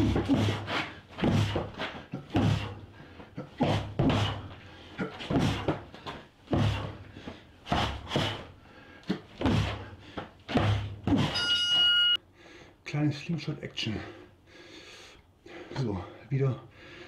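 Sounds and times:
heavy thuds on training dummy: 0.0 - 2.8, 5.2 - 5.9, 6.5 - 7.0, 10.5 - 11.4.

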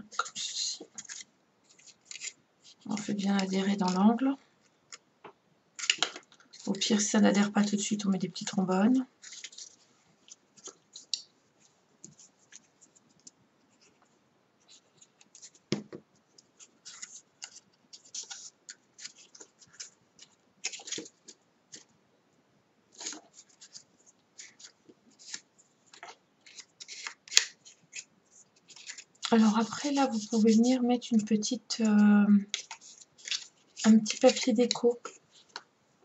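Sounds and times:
paper rustling and scraping: 0.1 - 4.0, 9.2 - 14.0, 16.6 - 21.9, 22.9 - 35.6.

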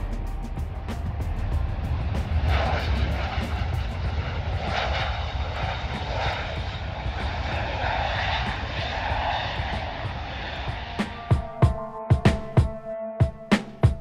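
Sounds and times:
heavy low rumble: 0.0 - 12.8
jet engines roaring: 0.0 - 12.8.

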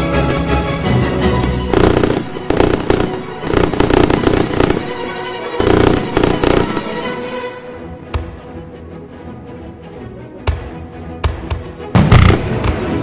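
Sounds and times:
music: 0.0 - 13.0
fireworks popping and crackling: 1.7 - 7.2, 12.0 - 13.0.

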